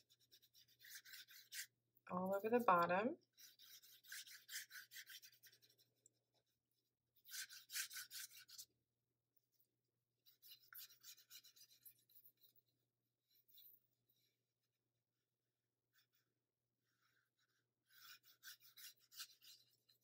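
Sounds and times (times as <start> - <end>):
paintbrush bristles swishing: 3.4 - 6.0, 7.2 - 8.7, 10.4 - 12.6, 18.0 - 20.0.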